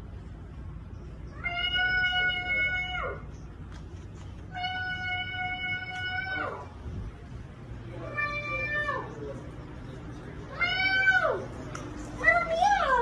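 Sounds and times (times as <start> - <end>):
cat meowing: 1.3 - 3.3, 4.5 - 6.7, 8.1 - 9.2.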